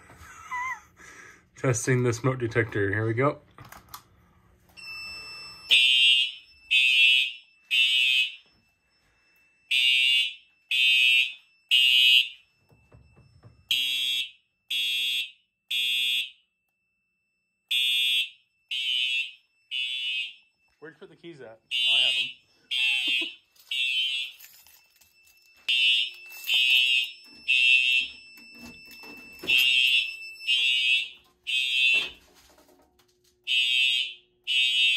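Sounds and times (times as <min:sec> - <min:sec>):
fire alarm horn blasts: 0:04.8 - 0:12.6, 0:13.6 - 0:16.6, 0:17.6 - 0:24.5, 0:25.5 - 0:32.2, 0:33.4 - 0:34.9
faint steady high tone: 0:08.4 - 0:09.7.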